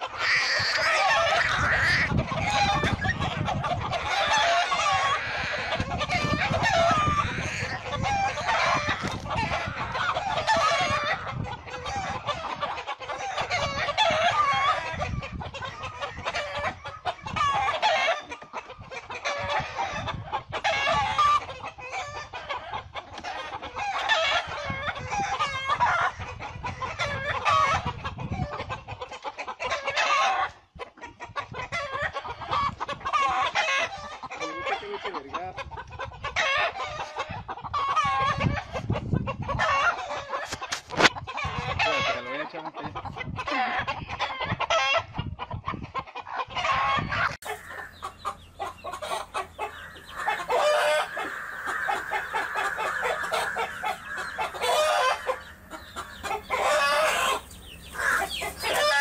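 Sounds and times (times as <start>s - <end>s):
hen squawking and cackling: 0.0s - 28.7s, 46.5s - 59.0s.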